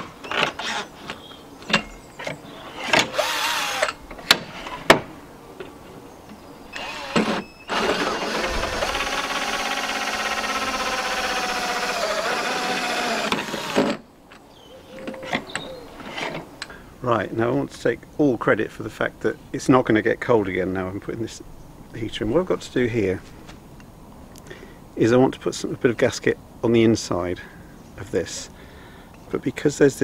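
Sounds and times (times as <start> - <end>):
drill clicks: 2.8 - 4.4, 6.7 - 14.0
drill cutting with hole saw: 3.1 - 4.0, 6.8 - 14.0.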